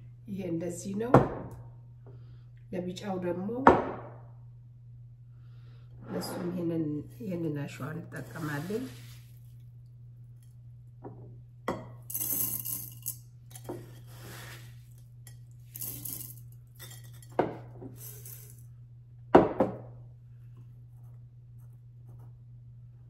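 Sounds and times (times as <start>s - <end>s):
steady low hum: 0.0s - 23.0s
sand pouring into glass vase: 8.2s - 9.4s, 14.1s - 14.8s.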